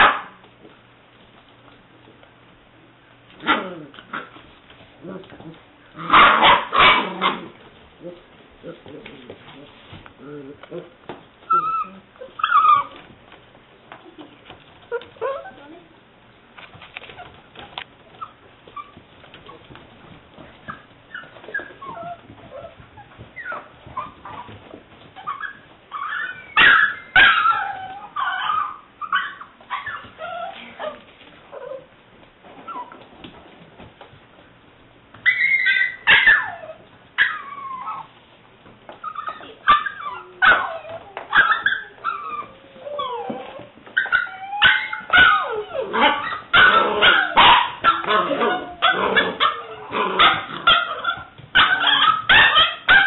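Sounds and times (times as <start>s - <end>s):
puppy whimpering and yipping: 11.4s - 13.1s, 18.1s - 19.6s, 20.7s - 31.9s, 32.6s - 33.0s, 35.2s - 38.1s, 39.0s - 53.0s.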